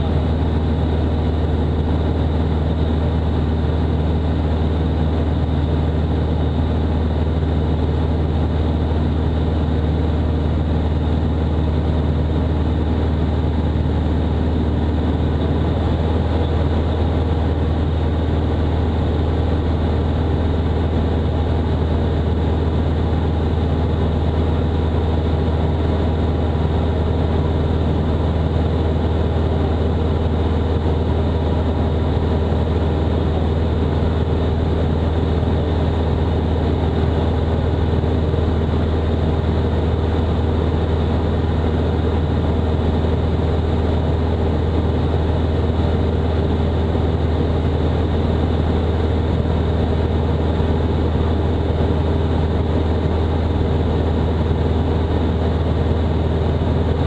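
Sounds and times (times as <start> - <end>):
propeller plane engine droning: 0.0 - 57.0.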